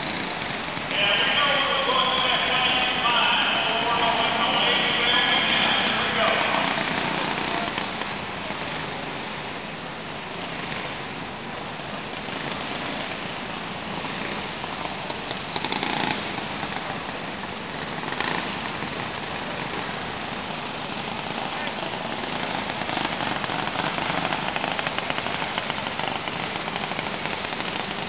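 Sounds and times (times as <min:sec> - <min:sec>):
clatter: 0:00.0 - 0:00.9, 0:06.3 - 0:08.9, 0:12.0 - 0:28.0
small kart engines droning: 0:00.0 - 0:28.0.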